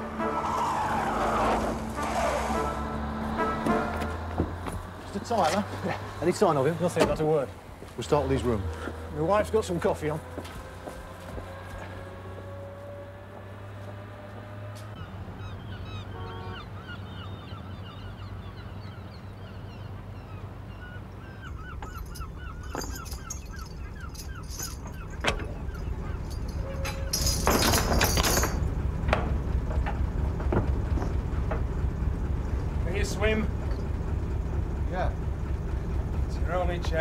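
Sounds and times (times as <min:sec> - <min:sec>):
boat engine droning: 0:00.0 - 0:37.0
flock of birds calling: 0:15.4 - 0:27.1.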